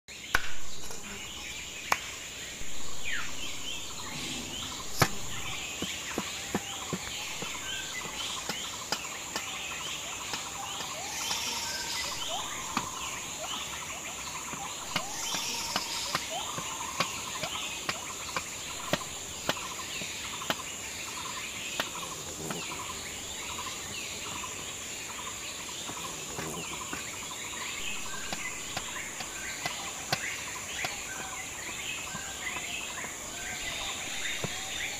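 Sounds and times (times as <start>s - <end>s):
birds chirping: 0.1s - 34.9s
cleaver striking chopping block: 0.3s - 1.0s, 4.8s - 13.1s, 14.5s - 20.6s, 27.8s - 31.4s
high insect drone: 0.5s - 34.9s.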